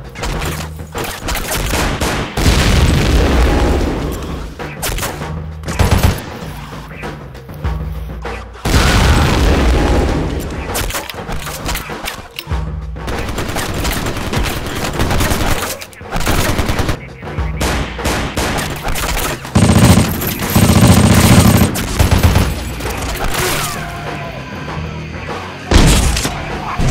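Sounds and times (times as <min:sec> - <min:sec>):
action music score: 0:00.0 - 0:26.9
rapid gunfire: 0:00.2 - 0:04.0, 0:04.8 - 0:06.4, 0:13.1 - 0:23.4.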